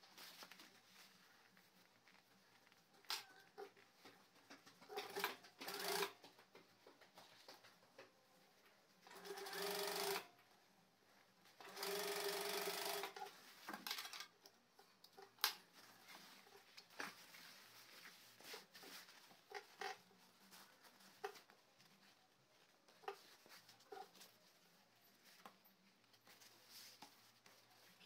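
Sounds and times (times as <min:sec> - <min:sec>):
fabric rustling: 0:00.0 - 0:05.9, 0:15.6 - 0:28.0
sewing machine stitching: 0:04.9 - 0:06.2, 0:09.0 - 0:10.3, 0:11.6 - 0:14.3.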